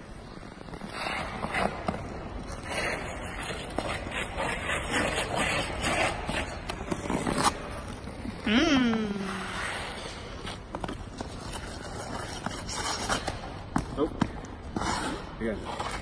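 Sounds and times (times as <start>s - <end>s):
skate blades scraping ice: 0.2s - 8.4s, 9.3s - 16.0s.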